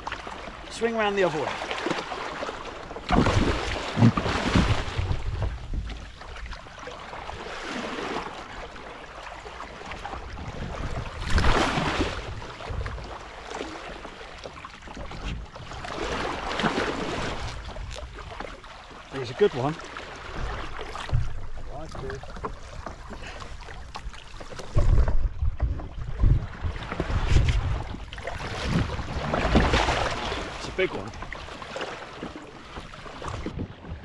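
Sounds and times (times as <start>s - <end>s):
water splashing against kayak: 0.0s - 34.0s
wind rumble on microphone: 3.1s - 6.6s, 10.0s - 13.2s, 20.3s - 22.2s, 24.4s - 30.5s.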